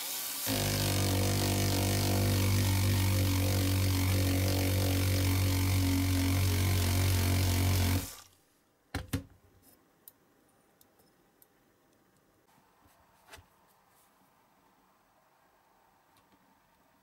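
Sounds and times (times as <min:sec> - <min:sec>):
cordless drill running: 0:00.5 - 0:08.3.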